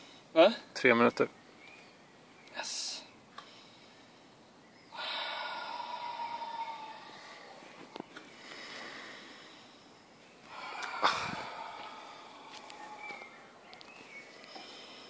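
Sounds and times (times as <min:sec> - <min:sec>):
man breathing hard: 0:03.4 - 0:15.0.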